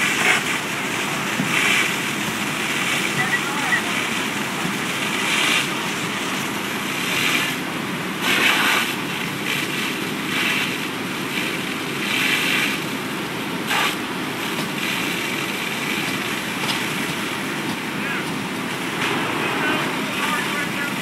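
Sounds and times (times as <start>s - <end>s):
hoses spraying water hiss: 0.0s - 7.6s, 8.2s - 12.8s
fire engines pumping water: 0.0s - 21.0s.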